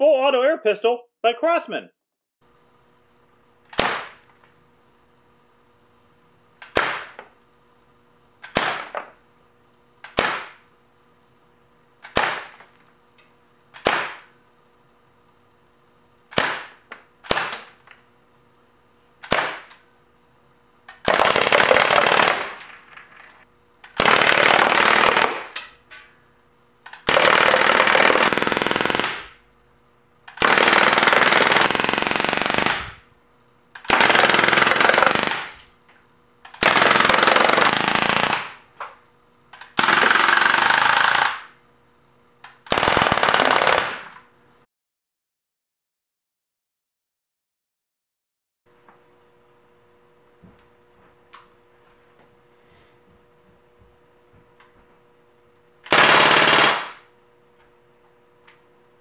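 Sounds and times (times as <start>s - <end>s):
air pistol shots: 3.7s - 4.3s, 6.6s - 7.2s, 8.4s - 9.0s, 10.0s - 10.7s, 12.0s - 12.7s, 13.7s - 14.4s, 16.3s - 17.8s, 19.2s - 19.8s, 20.9s - 22.7s, 23.9s - 25.8s, 26.9s - 29.4s, 30.3s - 33.0s, 33.8s - 35.7s, 36.5s - 38.7s, 39.6s - 41.6s, 42.5s - 44.2s, 55.8s - 57.1s
air pistol full-auto bursts: 21.0s - 22.6s, 23.9s - 25.7s, 26.9s - 29.4s, 30.3s - 33.0s, 33.8s - 35.6s, 36.5s - 38.6s, 39.6s - 41.6s, 42.6s - 44.2s, 55.8s - 57.1s.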